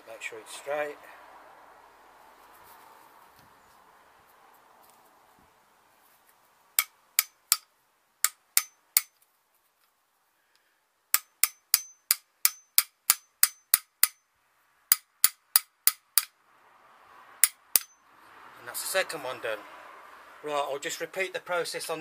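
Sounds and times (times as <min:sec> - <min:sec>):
hammer tapping metal bolt: 0:11.2 - 0:14.2, 0:17.4 - 0:17.9.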